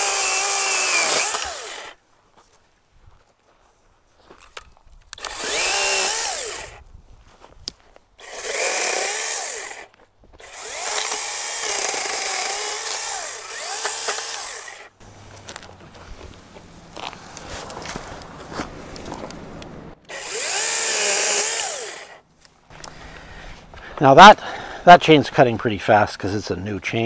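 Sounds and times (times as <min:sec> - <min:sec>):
chainsaw cutting branch: 0:00.0 - 0:02.0, 0:05.2 - 0:06.8, 0:08.2 - 0:15.7, 0:20.0 - 0:22.2.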